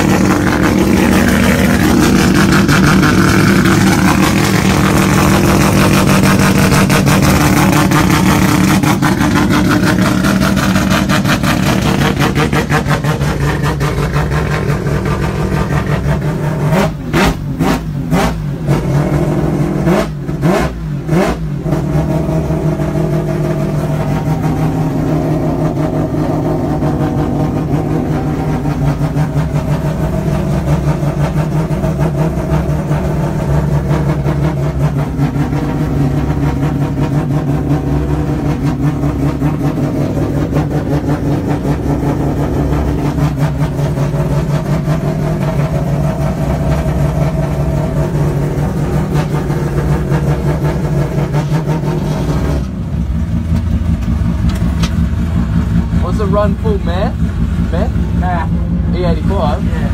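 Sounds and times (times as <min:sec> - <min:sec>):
rotary engine rumbling: 0:00.0 - 0:59.9
engine sharp pops: 0:48.4 - 0:57.4.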